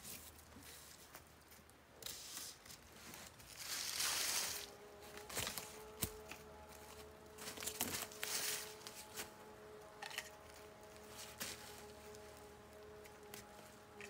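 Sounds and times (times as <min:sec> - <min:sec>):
rustling of cord and gear: 0:00.0 - 0:14.0
footsteps crunching on snow: 0:03.0 - 0:09.5, 0:10.2 - 0:13.9.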